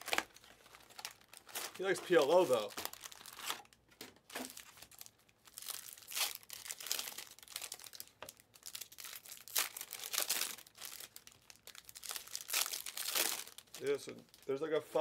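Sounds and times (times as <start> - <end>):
foil wrappers crinkling: 0.0 - 15.0.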